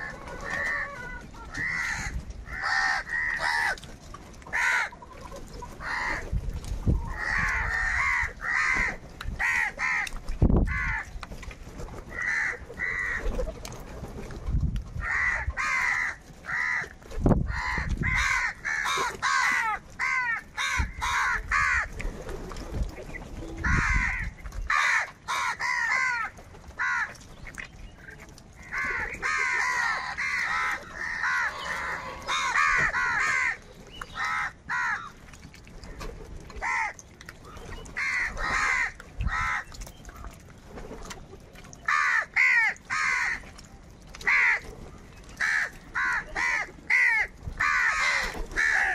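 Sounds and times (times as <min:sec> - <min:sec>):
crows cawing: 0:00.0 - 0:03.8, 0:04.5 - 0:05.0, 0:05.8 - 0:06.2, 0:07.1 - 0:10.1, 0:10.7 - 0:11.1, 0:12.1 - 0:13.3, 0:15.0 - 0:21.9, 0:23.6 - 0:27.2, 0:28.6 - 0:33.6, 0:34.2 - 0:35.1, 0:36.6 - 0:37.0, 0:38.0 - 0:39.7, 0:41.9 - 0:43.4, 0:44.2 - 0:44.6, 0:45.4 - 0:48.9.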